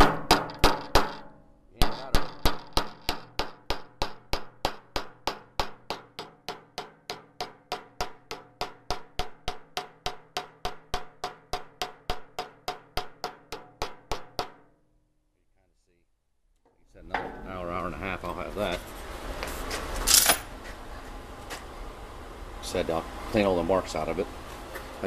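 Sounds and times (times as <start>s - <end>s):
hammer striking sheet metal: 0.0s - 14.7s, 17.0s - 18.7s.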